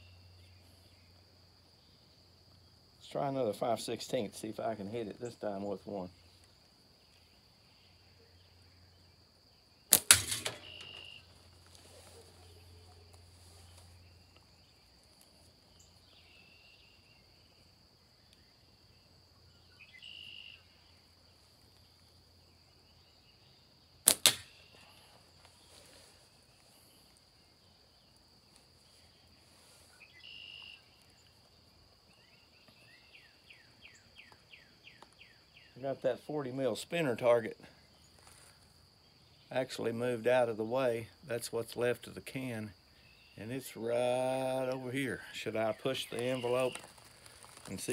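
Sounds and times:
high insect drone: 0.0s - 47.9s
slingshot shot cracking: 9.9s - 11.0s, 24.1s - 24.7s.

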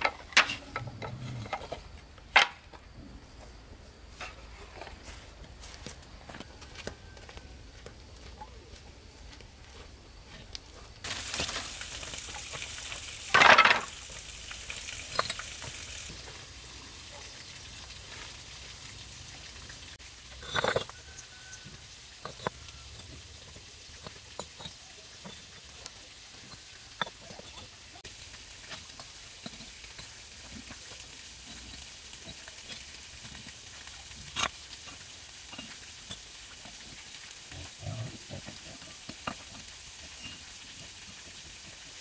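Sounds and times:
brick scraping on mortar: 20.4s - 21.0s.

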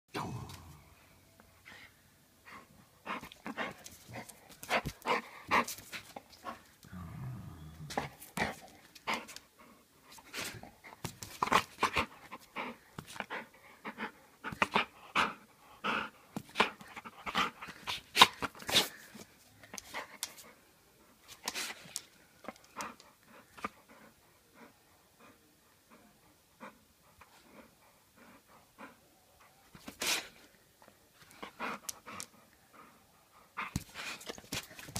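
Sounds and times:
dog growling low: 0.1s - 1.0s, 6.8s - 8.3s
dog sniffing and snuffling: 31.2s - 34.9s.

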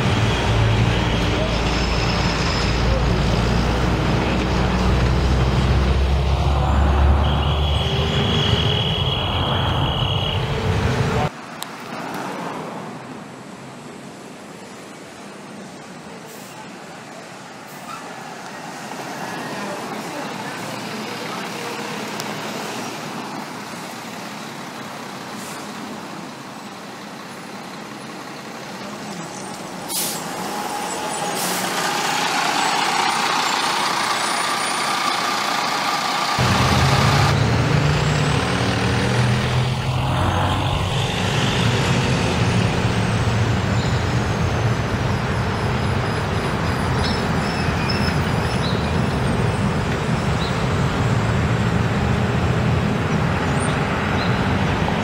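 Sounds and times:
bus passing: 0.0s - 55.0s
diesel engine low rumble: 19.9s - 55.0s
air brake hisses: 29.9s - 30.4s.

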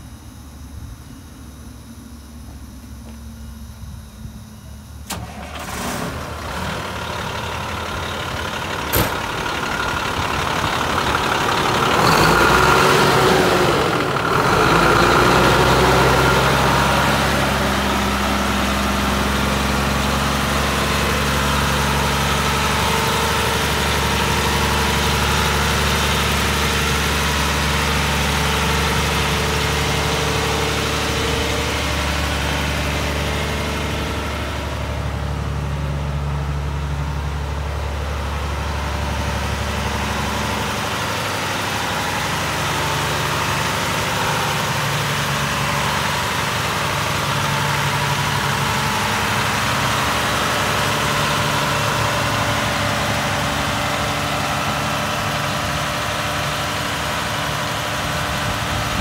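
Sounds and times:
diesel truck engine idling: 0.0s - 59.0s.

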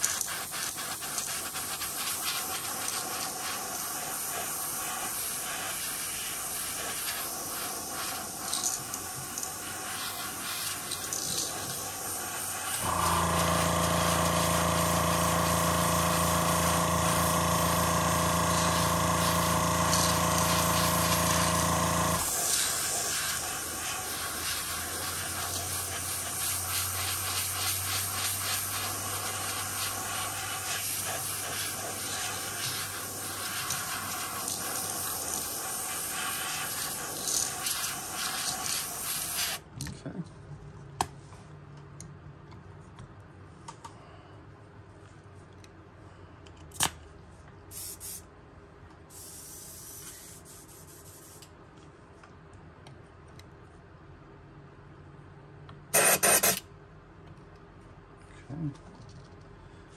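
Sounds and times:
airbrush air hissing: 0.0s - 39.6s, 47.7s - 48.3s, 49.1s - 51.4s, 56.0s - 56.6s
motor humming: 12.8s - 22.3s.

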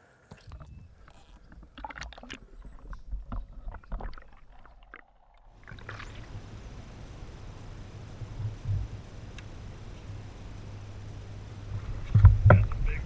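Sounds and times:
fish flopping and splashing: 0.3s - 6.7s.

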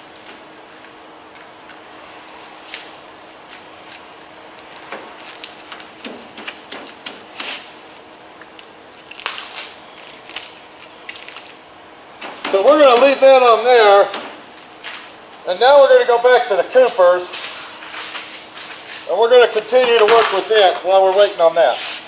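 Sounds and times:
plastic wrap crinkling: 0.0s - 0.7s, 2.1s - 11.6s.

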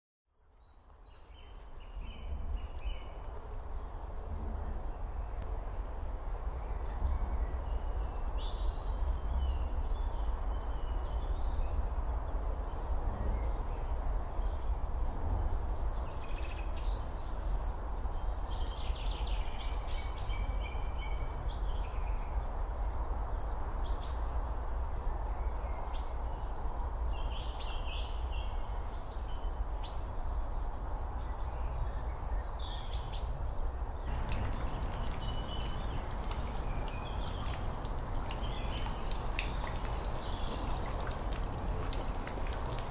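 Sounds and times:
low background noise: 0.3s - 42.9s
small birds chirping: 34.0s - 42.9s
water dripping into puddle: 34.0s - 42.9s.

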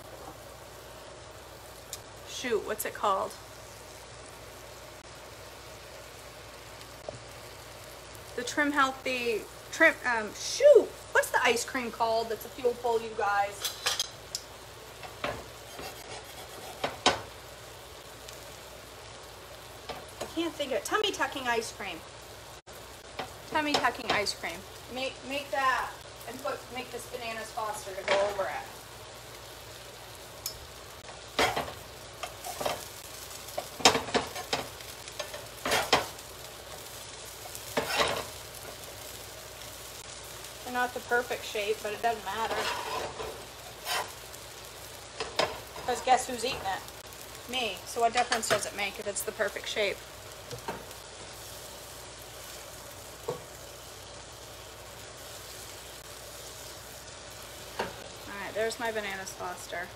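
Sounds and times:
pancakes sizzling in a pan: 0.0s - 59.9s
utensil scraping a pan: 15.2s - 17.2s, 35.2s - 36.1s, 37.5s - 38.4s, 42.3s - 44.2s.

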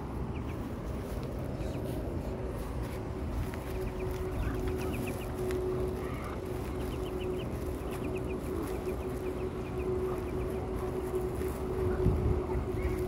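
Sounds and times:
ducklings peeping: 0.0s - 13.0s
low hum and rumble: 0.0s - 13.0s.

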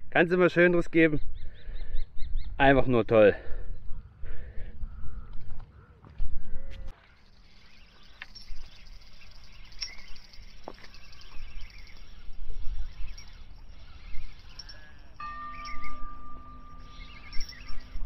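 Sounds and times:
small birds chirping: 1.0s - 18.0s
wind gusting on microphone: 11.2s - 18.0s
steady tone: 15.1s - 18.0s.

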